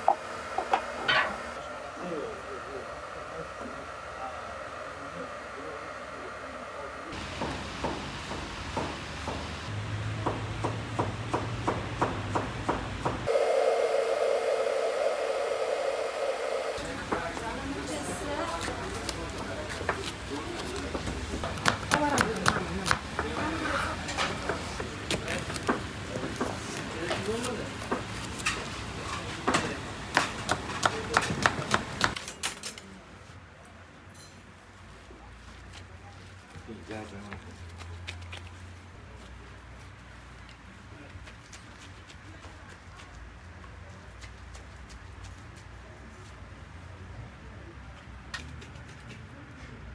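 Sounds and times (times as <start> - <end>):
droning motor whirr: 0.0 - 7.2, 13.3 - 18.8
low hum: 13.3 - 17.2.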